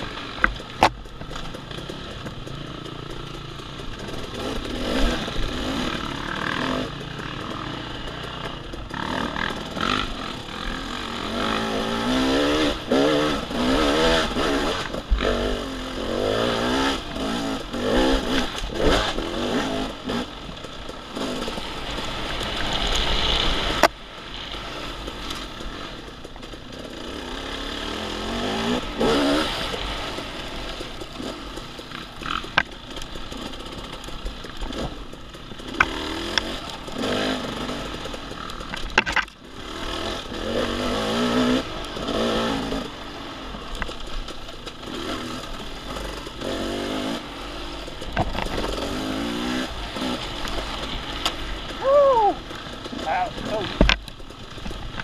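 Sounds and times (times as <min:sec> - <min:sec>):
dirt bike engine revving: 0:00.0 - 0:55.0
bike knocks and clatter: 0:00.4 - 0:10.0, 0:37.9 - 0:39.4, 0:47.9 - 0:49.0, 0:53.7 - 0:55.0.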